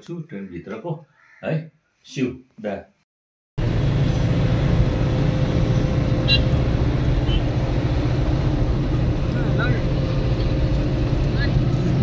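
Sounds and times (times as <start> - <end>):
bus engine and road rumble: 3.6 - 12.0.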